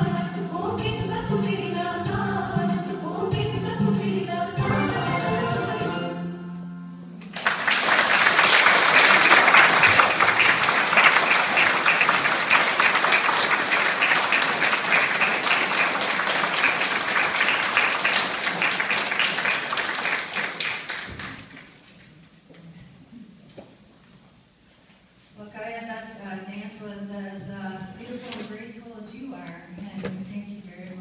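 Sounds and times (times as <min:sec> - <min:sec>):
audience applause: 0:07.2 - 0:21.9.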